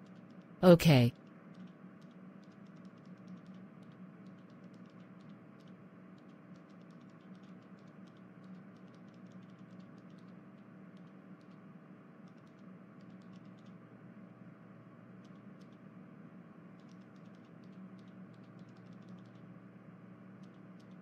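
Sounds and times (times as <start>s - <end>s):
light clicks: 1.5s - 11.6s, 12.2s - 13.8s, 16.8s - 19.5s.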